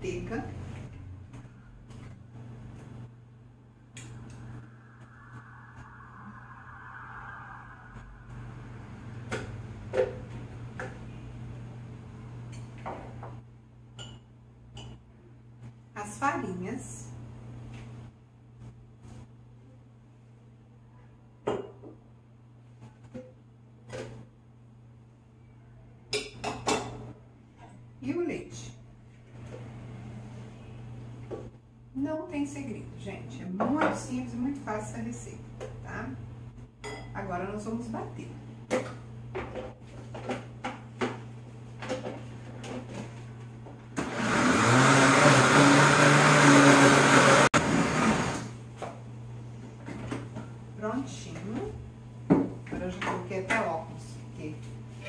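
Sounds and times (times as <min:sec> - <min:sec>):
steady low hum: 0:00.6 - 0:12.6
blender running: 0:44.0 - 0:48.5.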